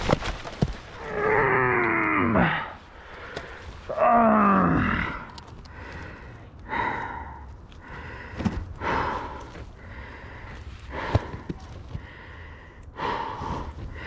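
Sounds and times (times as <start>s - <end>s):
man gasping and breathing hard: 4.3s - 14.0s.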